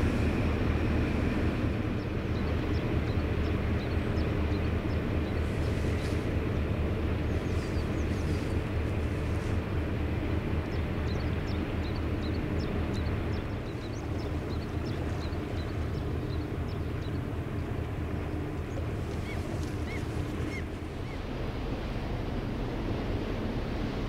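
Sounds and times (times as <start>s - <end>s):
small birds chirping: 10.7s - 17.4s, 18.3s - 21.2s.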